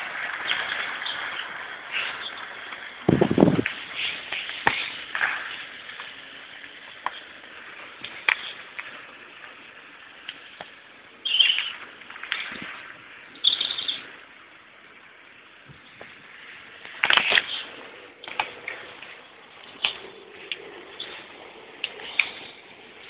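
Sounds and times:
birds chirping: 11.2s - 11.9s, 13.3s - 14.2s, 17.3s - 23.0s
high bird calls: 11.2s - 11.9s, 13.3s - 14.2s.

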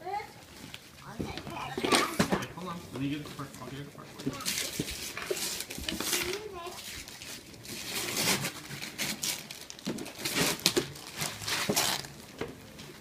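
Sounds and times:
wrapping paper tearing and crinkling: 4.2s - 12.4s.

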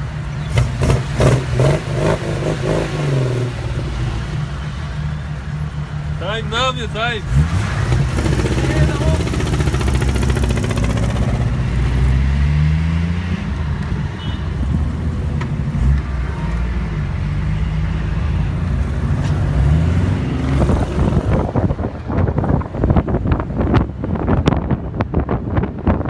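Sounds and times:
car engine accelerating: 7.1s - 14.0s
wind buffeting microphone: 20.4s - 26.0s.

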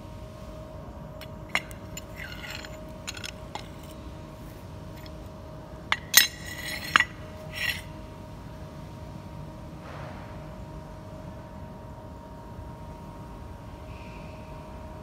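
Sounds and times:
metal clamp clanking: 1.2s - 4.0s, 5.0s - 5.2s, 5.9s - 7.9s
steel scraping on concrete: 1.2s - 4.0s, 5.0s - 5.2s, 5.9s - 8.0s.

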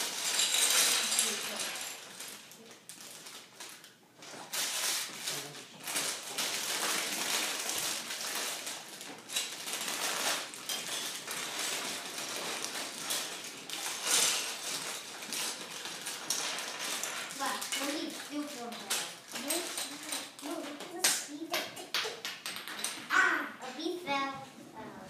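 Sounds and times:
packaging rustling and crinkling: 0.0s - 21.0s
plastic pieces clicking: 6.0s - 23.1s.

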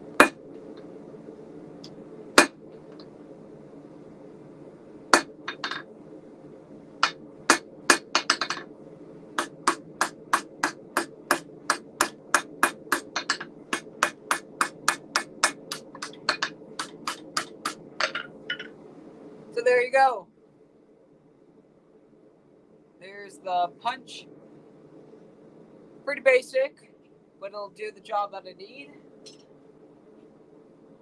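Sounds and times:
steady low hum: 0.0s - 31.0s
hammer striking steel on anvil: 5.2s - 5.8s, 7.0s - 8.6s, 9.4s - 18.7s.

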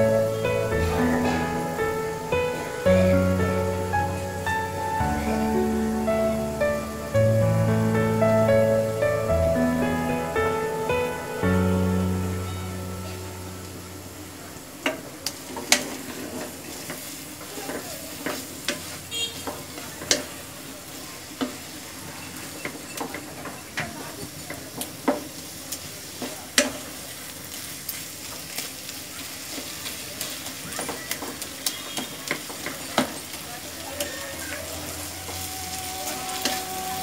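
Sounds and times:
leaves sizzling in a pan: 0.0s - 37.0s.

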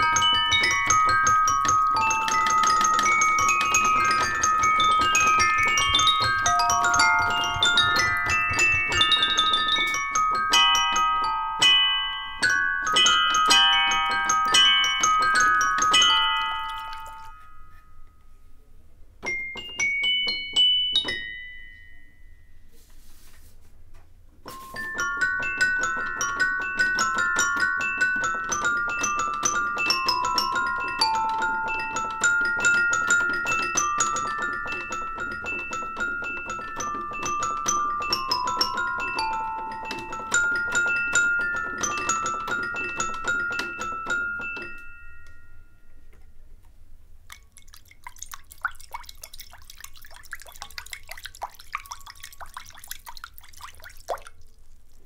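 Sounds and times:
toy piano notes: 0.0s - 18.3s, 19.2s - 22.1s, 24.5s - 46.4s.

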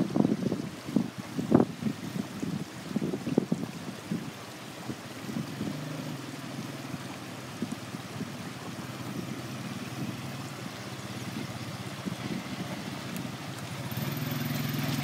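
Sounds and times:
quad bike engines running slowly: 4.1s - 15.0s.

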